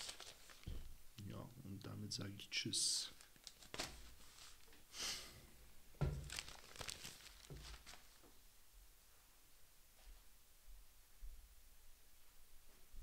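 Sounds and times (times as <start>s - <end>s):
newspaper rustling: 0.0s - 0.8s, 3.2s - 4.7s, 6.1s - 8.2s
dull thump: 6.0s - 6.3s.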